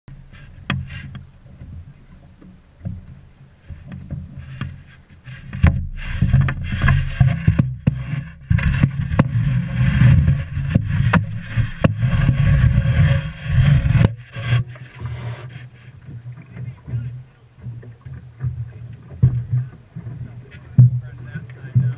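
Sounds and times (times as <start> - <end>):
boat gear knocks and clicks: 0.1 - 21.9
water rushing along hull: 0.1 - 21.9
wind buffeting microphone: 5.5 - 21.9.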